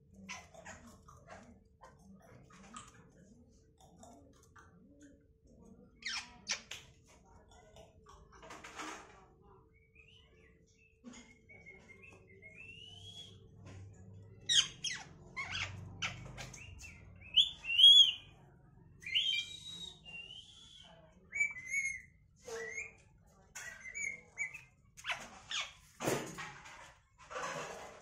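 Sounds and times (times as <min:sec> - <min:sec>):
parakeet squawking and chirping: 0:14.5 - 0:18.3, 0:23.6 - 0:25.9.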